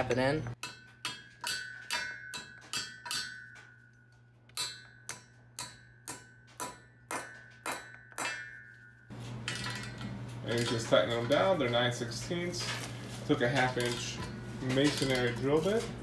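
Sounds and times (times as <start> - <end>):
low steady hum: 0.0 - 16.0
hammer tapping on metal: 0.6 - 8.9.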